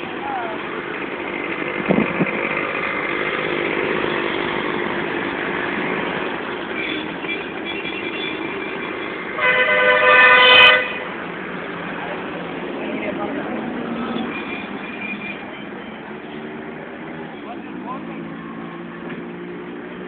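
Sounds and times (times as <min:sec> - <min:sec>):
traffic engines running: 0:00.0 - 0:20.0
vehicle horn: 0:06.7 - 0:11.2
loud horn blast: 0:09.4 - 0:11.2.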